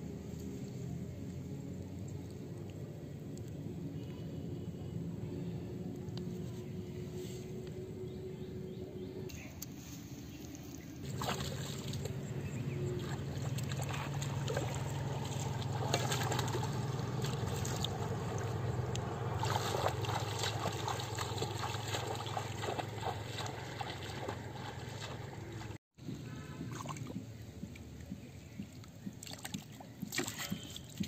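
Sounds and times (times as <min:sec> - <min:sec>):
water splashing and sloshing: 0:09.5 - 0:25.8, 0:26.6 - 0:31.0
low rumble: 0:11.0 - 0:28.7.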